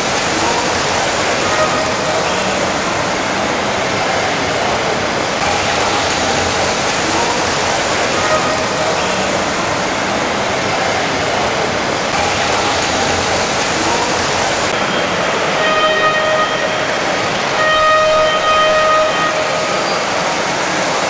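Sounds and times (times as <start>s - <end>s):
model trains running on track: 0.0s - 21.0s
horn or whistle tone: 15.5s - 20.0s.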